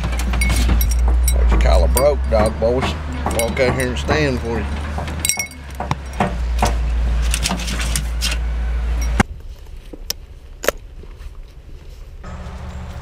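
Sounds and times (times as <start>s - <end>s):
knocks and clicks: 0.0s - 8.1s
steady low rumble: 0.0s - 13.0s.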